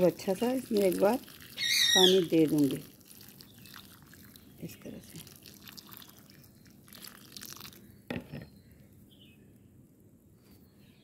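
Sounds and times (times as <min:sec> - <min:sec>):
water pouring onto soil: 0:00.0 - 0:07.9
knock: 0:08.1 - 0:08.5.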